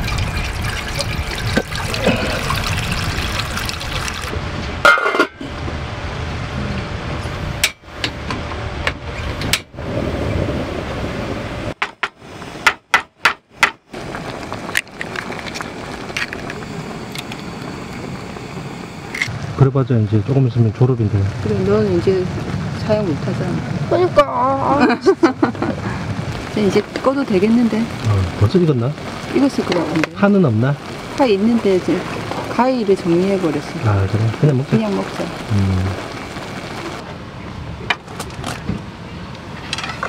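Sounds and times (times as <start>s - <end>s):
water pouring into metal pan: 0.0s - 4.3s
cooking sounds: 0.0s - 5.7s, 11.7s - 37.1s.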